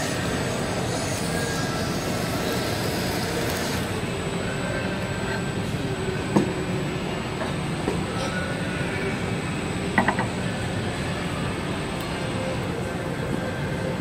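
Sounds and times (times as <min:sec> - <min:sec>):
blowtorch flame hissing: 0:00.0 - 0:04.0
low background hum: 0:00.0 - 0:14.0.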